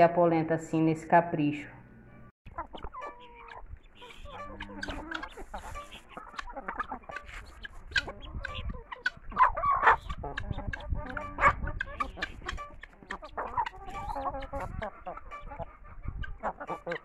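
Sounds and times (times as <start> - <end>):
chickens and guineafowl clucking: 2.1 - 17.0.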